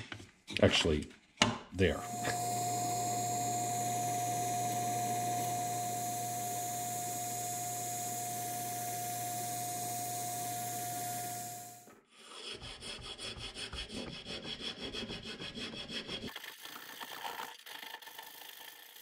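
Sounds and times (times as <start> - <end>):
bandsaw motor running: 2.0 - 11.9.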